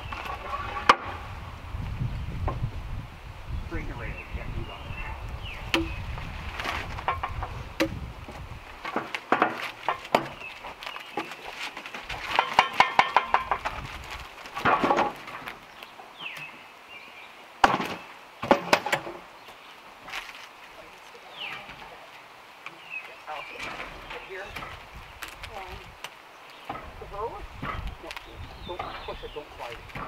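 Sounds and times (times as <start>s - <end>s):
birds chirping: 0.0s - 1.2s, 3.5s - 30.0s
logs knocking: 5.7s - 15.7s, 17.6s - 19.2s, 26.6s - 29.2s.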